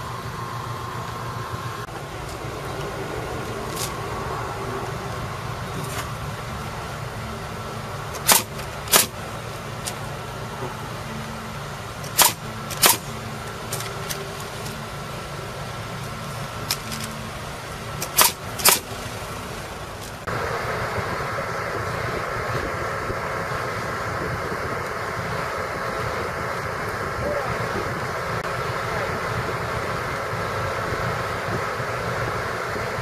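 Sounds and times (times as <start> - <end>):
steady mechanical hum: 0.0 - 33.0
nail gun firing: 8.1 - 9.2, 12.0 - 13.1, 18.0 - 19.0.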